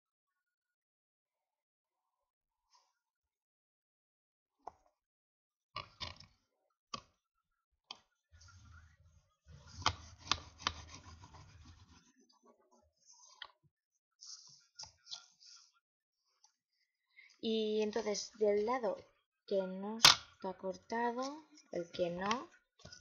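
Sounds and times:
tool scraping along paper: 0:09.6 - 0:12.1.

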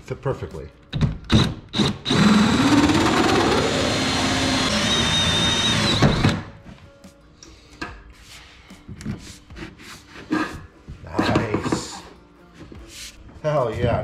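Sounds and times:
cordless drill with hole saw cutting: 0:01.3 - 0:06.5
plastic pipe knocking and rubbing: 0:09.0 - 0:12.0.

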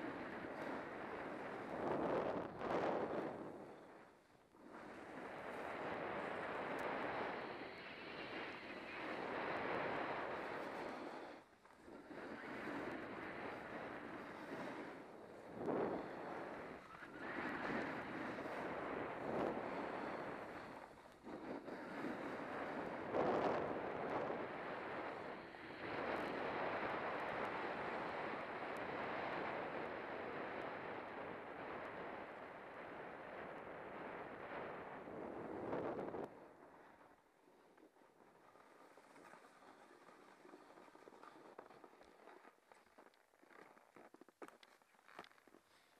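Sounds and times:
wind rushing over microphone: 0:00.0 - 0:37.3
skis scraping over snow: 0:04.6 - 0:29.6, 0:38.4 - 0:45.9
ski edges sliding over snow: 0:38.4 - 0:45.9.

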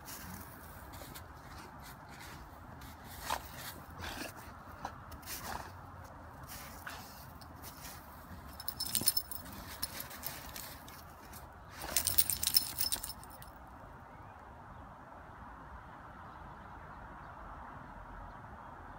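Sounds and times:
dog collar tags jingling: 0:07.4 - 0:13.5.

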